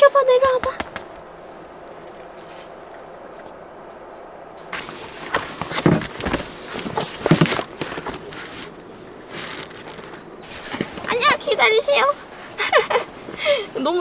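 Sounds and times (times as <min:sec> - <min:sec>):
rustling and handling noise: 0:01.9 - 0:04.0, 0:04.6 - 0:14.0
dull thumps: 0:04.7 - 0:08.4.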